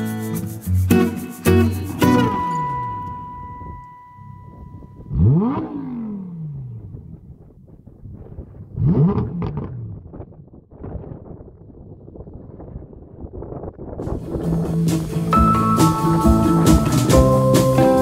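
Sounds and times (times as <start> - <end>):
car engine revving: 4.2 - 10.9.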